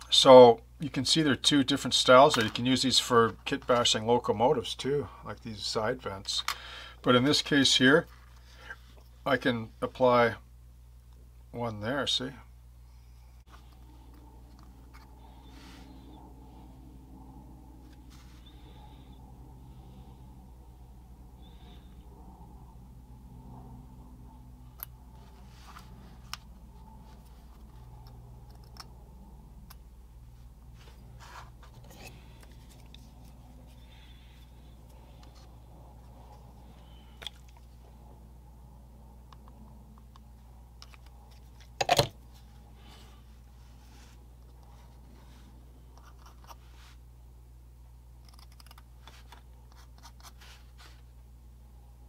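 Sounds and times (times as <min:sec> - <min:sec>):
steady low hum: 0:00.0 - 0:52.0
small sharp clicks and scrapes: 0:27.1 - 0:29.0, 0:48.2 - 0:51.0.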